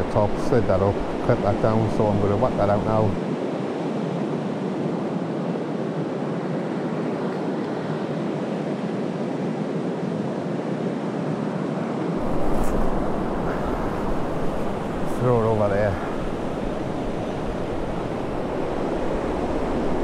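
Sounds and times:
waves washing up a beach: 0.0s - 20.0s
wind buffeting microphone: 12.2s - 20.0s.

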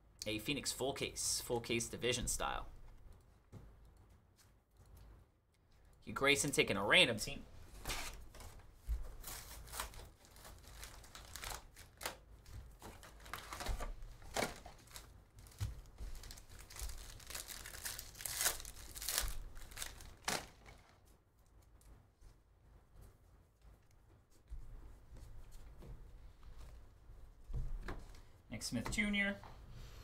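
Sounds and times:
card wrappers tearing and crinkling: 9.2s - 20.9s.

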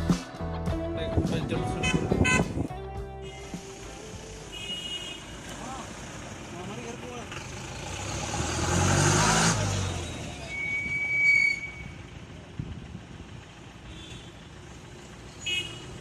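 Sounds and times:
low rumble of road traffic: 0.0s - 16.0s
vehicle passing close by: 7.2s - 10.5s.

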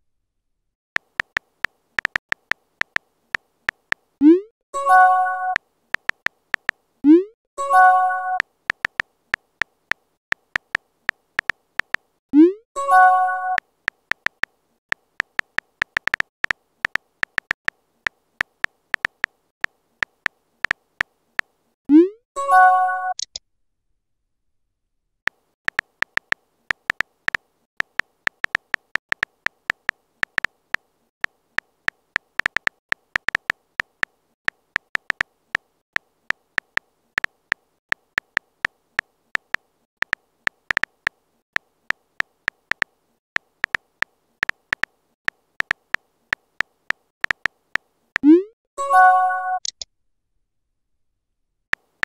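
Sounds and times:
phone keyboard key clicks: 1.0s - 4.0s, 6.0s - 6.8s, 8.4s - 12.0s, 13.9s - 17.8s, 18.4s - 21.1s, 25.3s - 35.3s, 39.4s - 47.8s.

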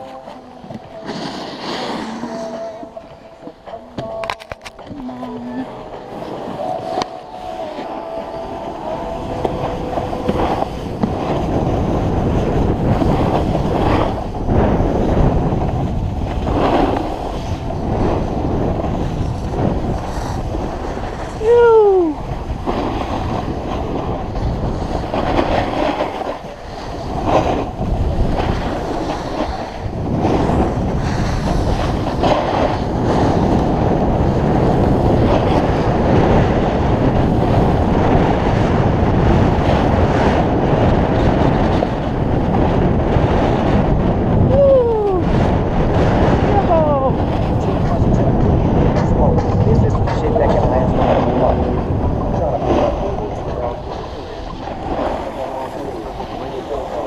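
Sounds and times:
snowboard scraping on snow: 0.0s - 4.2s, 5.7s - 44.5s
falling tone: 0.0s - 11.1s
wind buffeting microphone: 0.0s - 57.0s.

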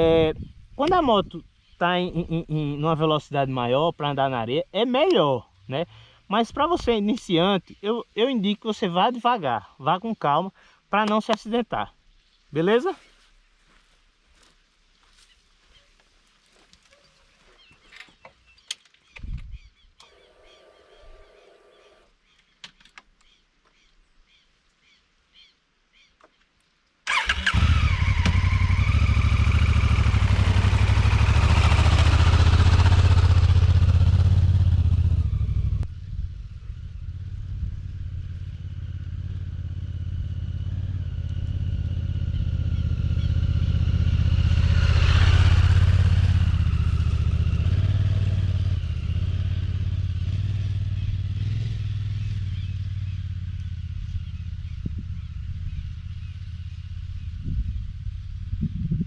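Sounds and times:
motorcycle engine starting and running: 27.1s - 59.0s.

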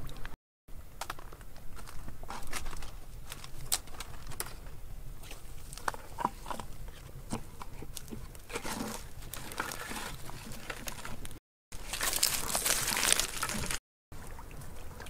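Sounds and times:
footsteps on twigs: 1.0s - 4.4s, 8.5s - 13.8s
branches snapping underfoot: 1.0s - 4.6s, 8.0s - 13.8s.

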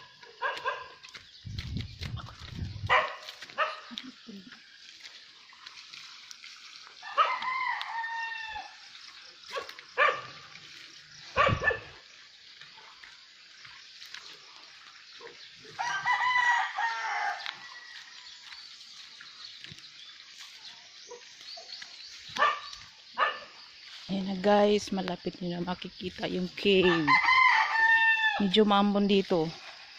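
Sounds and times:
rooster crowing: 7.0s - 8.8s, 15.8s - 18.1s, 26.8s - 28.5s.

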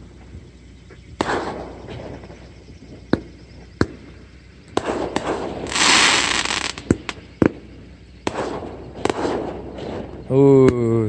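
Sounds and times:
fireworks bangs: 4.8s - 7.6s, 8.2s - 10.2s
loud firework hiss: 4.8s - 10.2s.

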